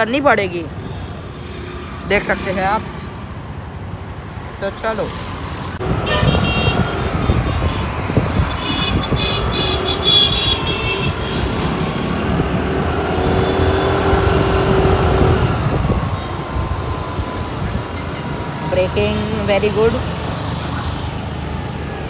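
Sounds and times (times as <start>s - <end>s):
high-pitched traffic sound: 0.0s - 22.0s
wind and road rush on microphone: 0.0s - 22.0s
scooter engine hum: 5.2s - 22.0s.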